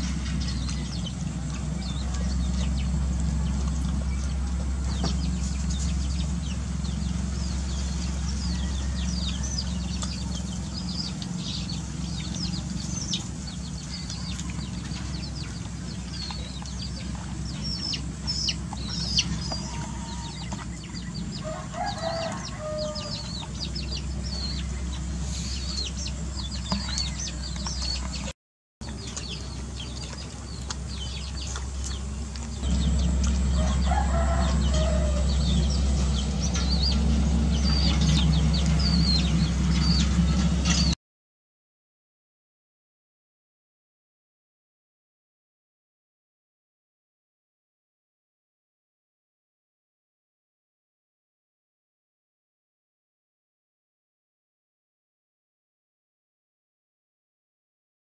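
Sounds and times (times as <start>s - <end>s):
puppies lapping and chewing: 0.0s - 40.9s
chickens clucking: 0.0s - 41.0s
steady low hum: 0.0s - 41.0s.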